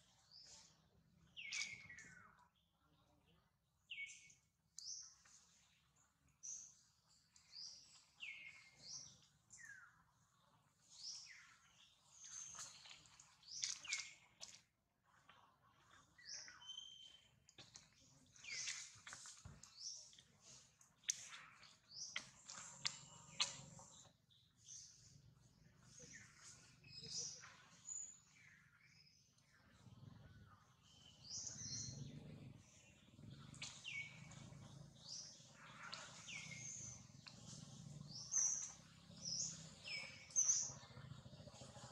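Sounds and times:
birds chirping: 0.0s - 2.7s, 3.8s - 14.6s, 15.3s - 41.9s
faint bird whistles: 16.6s - 17.2s.

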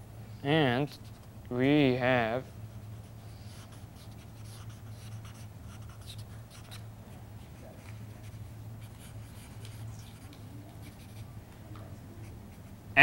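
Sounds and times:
steady low hum: 0.0s - 13.0s
marker scratching on paper: 0.8s - 1.3s, 3.0s - 6.8s, 7.4s - 11.3s.

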